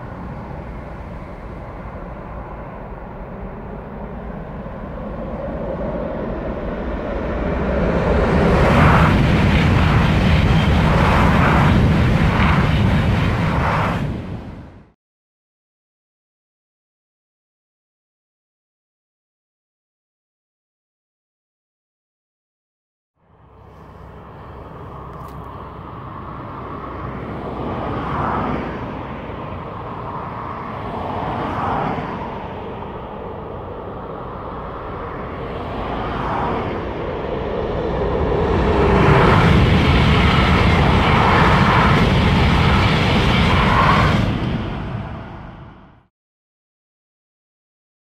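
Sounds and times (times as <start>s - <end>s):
high-speed train passing: 0.0s - 15.0s, 23.2s - 46.1s.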